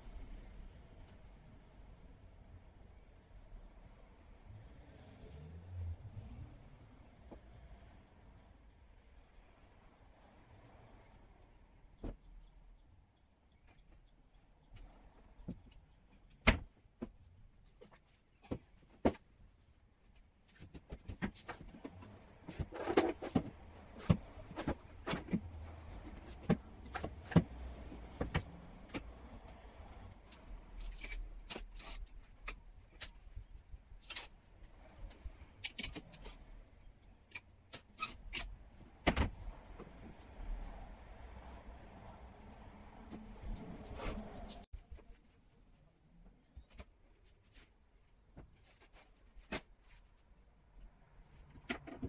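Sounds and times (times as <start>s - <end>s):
clothes rustling: 42.6s - 50.5s.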